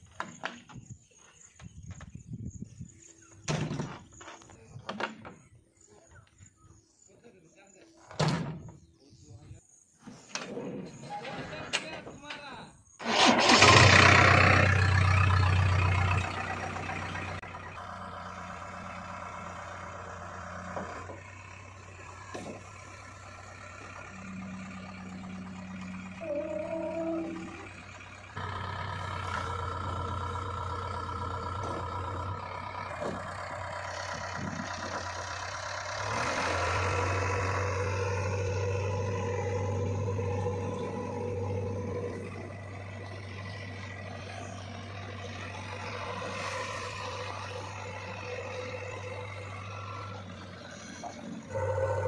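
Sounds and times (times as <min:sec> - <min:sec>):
diesel engine running: 0:13.0 - 0:52.0.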